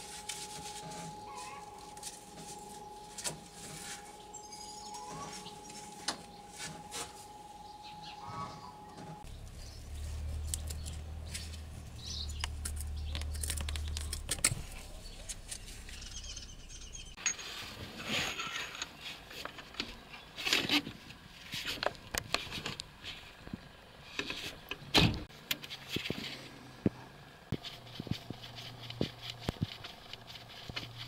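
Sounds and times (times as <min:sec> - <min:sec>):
low hum: 0:00.0 - 0:17.2.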